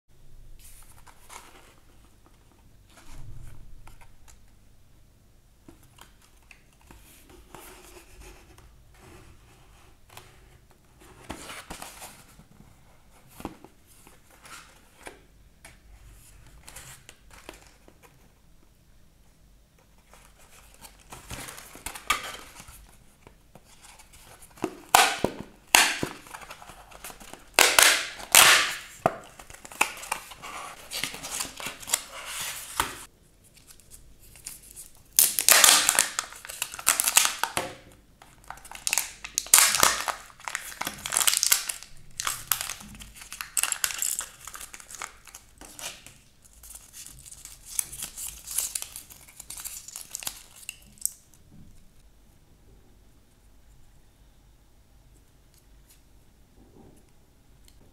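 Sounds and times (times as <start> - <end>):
wrappers crinkling and tearing: 23.9 - 37.6, 38.4 - 51.2.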